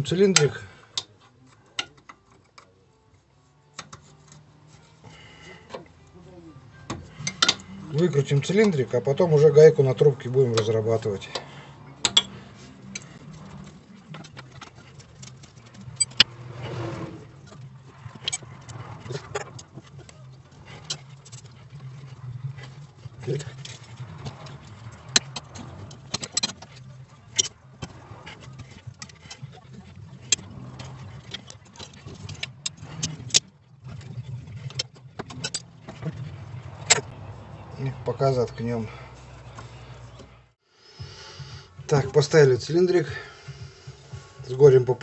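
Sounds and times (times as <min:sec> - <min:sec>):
wrench clicking on metal bolts: 0:07.0 - 0:07.7, 0:10.6 - 0:13.1.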